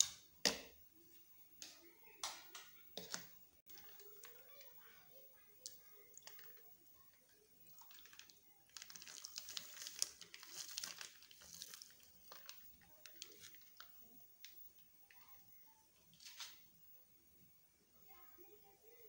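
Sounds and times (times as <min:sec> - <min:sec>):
liquid trickling into bowl: 0:07.6 - 0:13.9.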